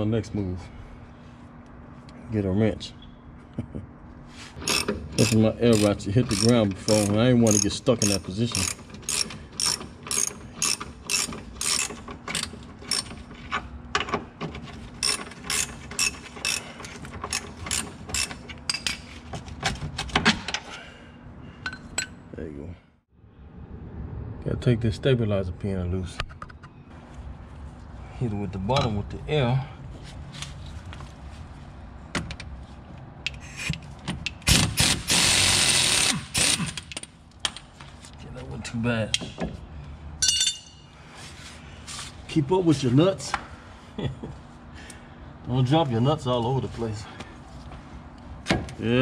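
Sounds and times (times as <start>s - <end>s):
ratchet wrench clicking: 4.6s - 13.1s, 15.0s - 16.7s.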